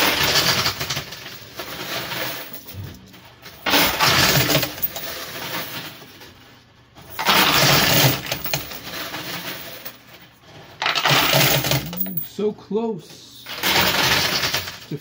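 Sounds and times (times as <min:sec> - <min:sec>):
coins clattering and cascading: 0:00.0 - 0:02.9, 0:03.5 - 0:06.2, 0:07.0 - 0:10.0, 0:10.8 - 0:12.2, 0:13.5 - 0:15.0.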